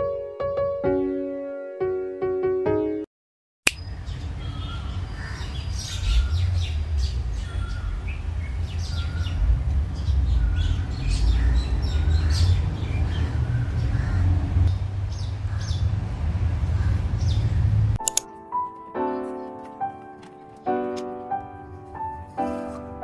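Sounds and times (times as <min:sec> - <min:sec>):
birds chirping: 0:03.7 - 0:18.4
steady low rumble: 0:03.9 - 0:18.0
plucked lofi music: 0:18.0 - 0:23.0.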